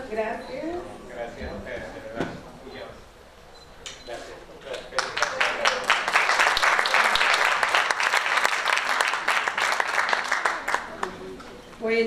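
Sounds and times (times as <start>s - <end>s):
audience applauding: 4.7s - 11.3s.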